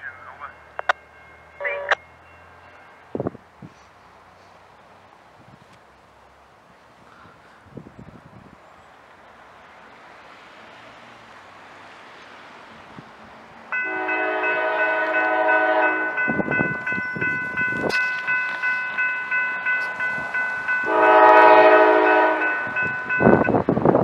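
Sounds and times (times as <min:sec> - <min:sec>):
railroad crossing bell ringing: 0:00.0 - 0:04.5, 0:13.7 - 0:24.0
locomotive air horn: 0:13.8 - 0:16.6, 0:19.8 - 0:23.5.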